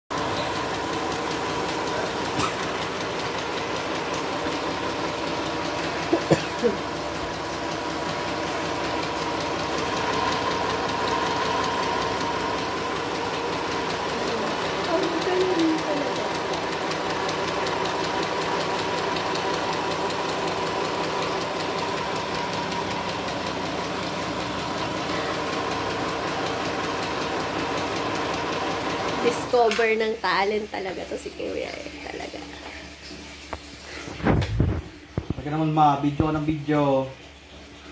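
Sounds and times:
sewing machine running: 0.1s - 33.0s.

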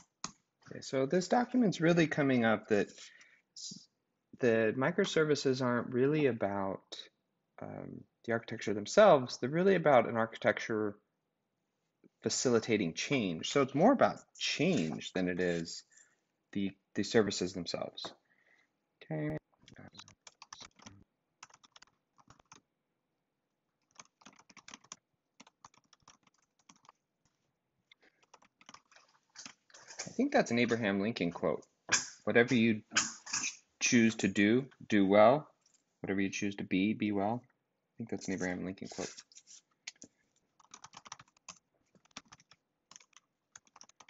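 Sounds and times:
typing on computer keyboard: 19.7s - 22.6s, 23.8s - 29.6s, 40.6s - 44.0s.

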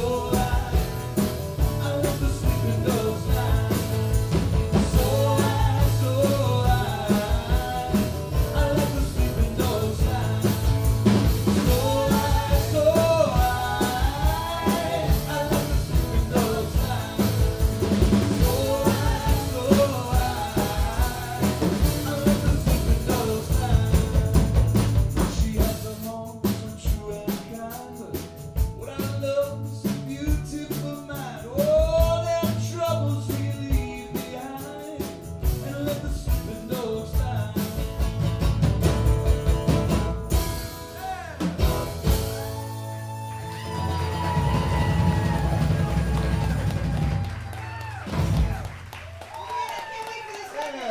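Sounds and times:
person singing: 0.0s - 24.5s
bass guitar: 0.0s - 49.0s
drums: 0.0s - 50.9s
strummed acoustic guitars: 30.4s - 47.2s.

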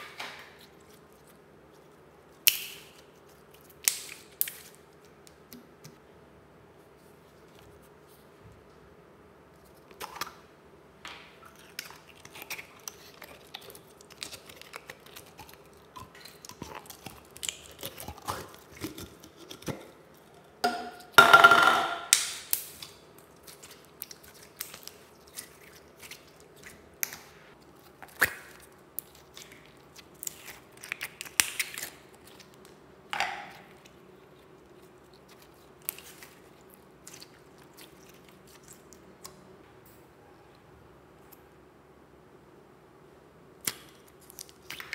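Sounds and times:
loud slime squelch: 22.2s - 32.9s, 33.5s - 39.4s, 43.6s - 44.9s.

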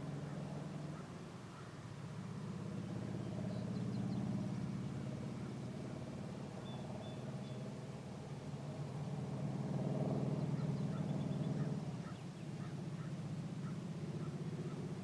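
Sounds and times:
faint high bird chirps: 6.6s - 7.6s, 10.6s - 14.8s.

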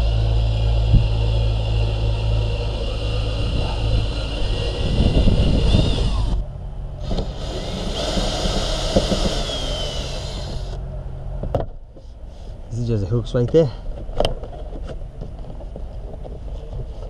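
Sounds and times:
cordless driver whining: 0.0s - 10.8s
steady low hum: 0.0s - 17.0s.

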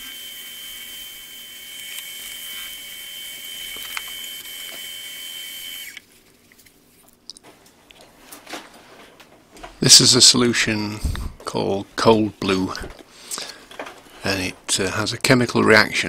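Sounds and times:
lathe motor whine: 0.0s - 6.0s.

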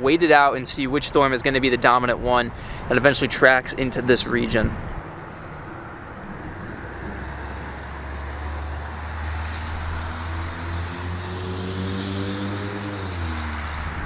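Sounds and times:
traffic rumble: 0.0s - 14.0s
vehicle engine passing: 4.0s - 14.0s.

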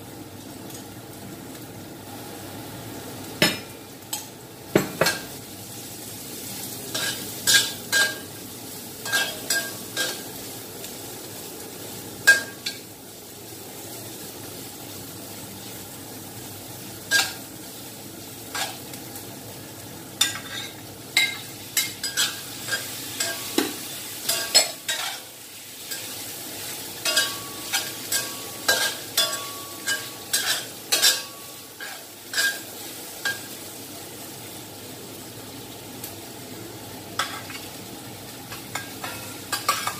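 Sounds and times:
hot oil sizzling in a wok: 0.0s - 39.9s.

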